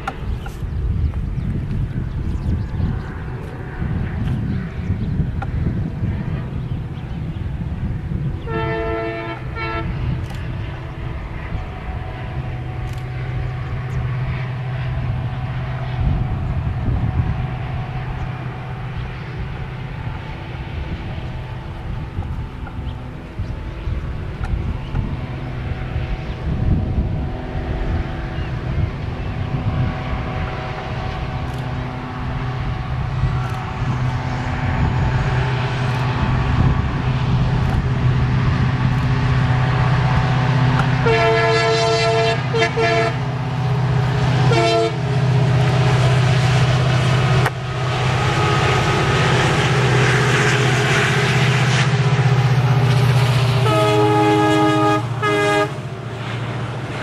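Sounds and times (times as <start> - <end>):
diesel locomotive engine drone: 0.0 - 57.0
locomotive multi-tone horn: 8.4 - 11.2, 40.9 - 43.4, 44.3 - 46.2, 47.2 - 52.1, 53.6 - 56.4.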